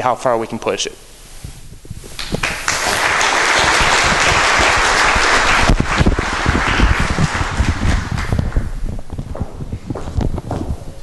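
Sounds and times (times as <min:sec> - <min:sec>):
audience applauding: 0:02.2 - 0:08.7.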